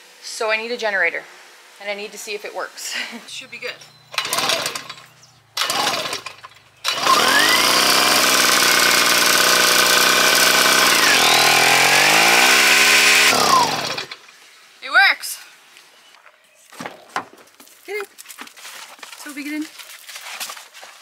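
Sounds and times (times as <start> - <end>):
generator engine running: 3.7 - 14.2
generator pull-start attempts: 3.9 - 14.4.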